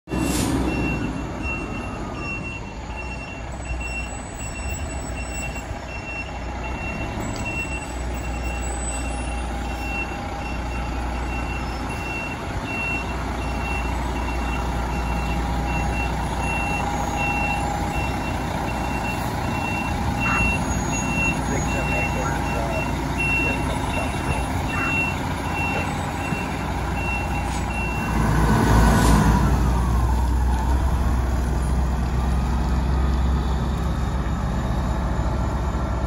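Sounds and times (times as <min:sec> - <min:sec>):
fire engine diesel engine: 0:00.1 - 0:36.0
electronic warning beep: 0:00.7 - 0:28.2.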